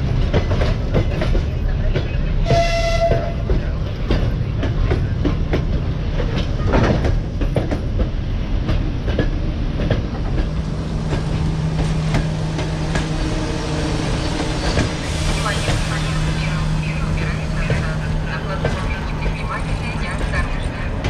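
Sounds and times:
low train rumble: 0:00.0 - 0:21.0
train wheels clicking over rail joints: 0:00.0 - 0:21.0.

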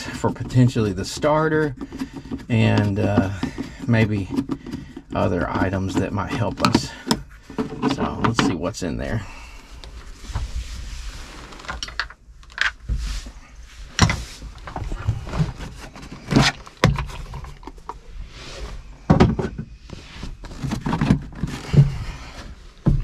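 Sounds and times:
plastic panel knocking and rattling: 0:19.1 - 0:19.7.

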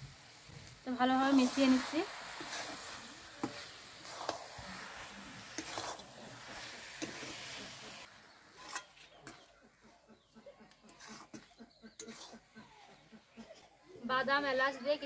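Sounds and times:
soft sizzling hiss: 0:00.0 - 0:09.9
spatula stirring in a metal pan: 0:00.0 - 0:13.8.

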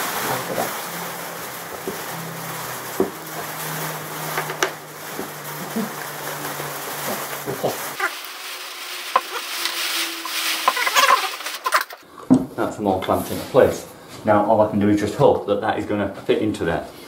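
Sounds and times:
steady hiss: 0:00.0 - 0:12.0
plywood strips knocking and scraping: 0:09.0 - 0:12.5.

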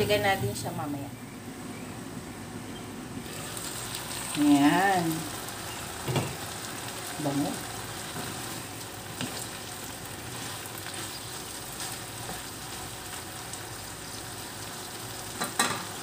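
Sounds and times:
food sizzling in a frying pan: 0:03.2 - 0:16.0
wooden spatula stirring: 0:08.0 - 0:13.2.

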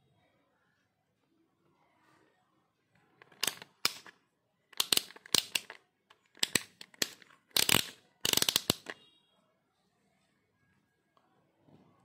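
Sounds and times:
multimeter dial clicking: 0:03.3 - 0:04.1, 0:04.8 - 0:09.0.

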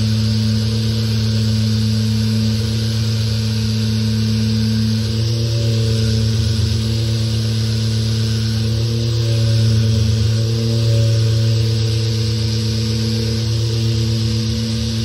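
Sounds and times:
orbital sander sanding wood: 0:00.0 - 0:15.0.

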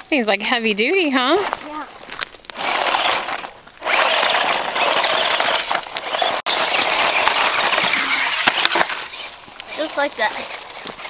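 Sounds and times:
remote-control truck motor whirring: 0:02.5 - 0:11.0.

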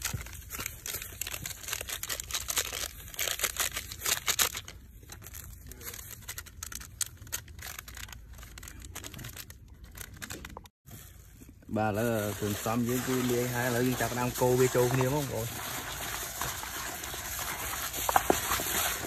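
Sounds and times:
plastic packaging crinkling: 0:00.0 - 0:19.0.

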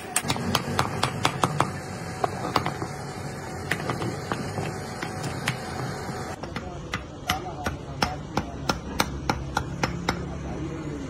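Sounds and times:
hammer tapping on steel: 0:06.4 - 0:10.3.

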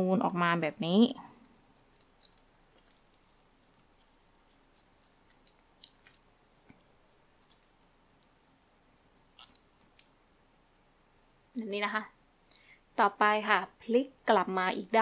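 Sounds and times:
ribbon crackling and rustling: 0:00.0 - 0:10.2.

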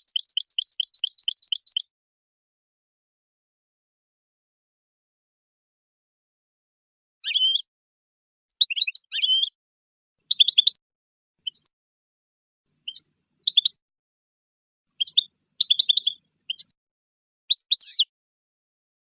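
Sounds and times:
goldfinch twittering song: 0:00.0 - 0:01.9, 0:07.3 - 0:07.7, 0:08.5 - 0:09.6, 0:10.3 - 0:10.8, 0:11.4 - 0:11.7, 0:12.8 - 0:13.8, 0:15.0 - 0:16.8, 0:17.5 - 0:18.1.

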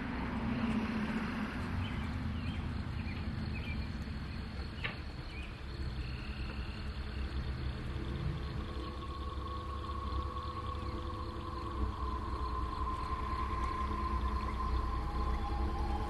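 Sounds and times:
low rumble: 0:00.0 - 0:16.0
faint high chirps: 0:04.7 - 0:16.0.

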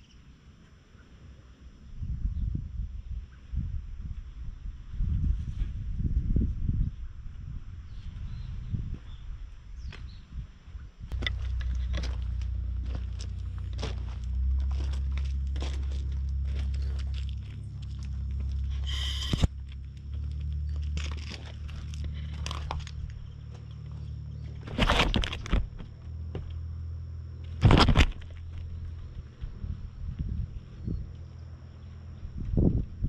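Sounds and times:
wind rumbling on microphone: 0:01.8 - 0:26.6, 0:27.4 - 0:33.0
small clicks and crunches: 0:11.1 - 0:26.6, 0:27.4 - 0:28.8.

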